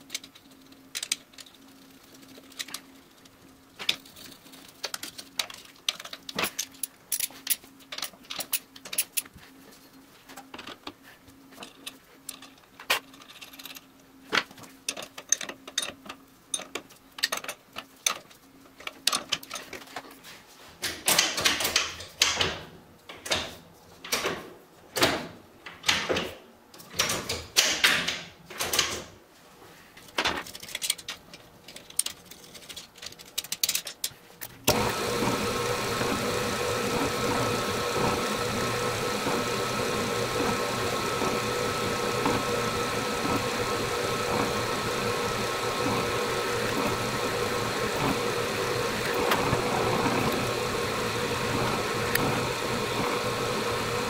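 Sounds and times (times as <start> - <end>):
drill press boring steel: 34.7 - 54.0.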